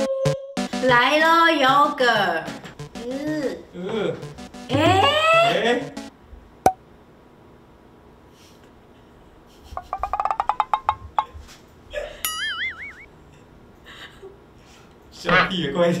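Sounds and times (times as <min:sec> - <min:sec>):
wobbling warbling rising tone: 0:12.4 - 0:13.1.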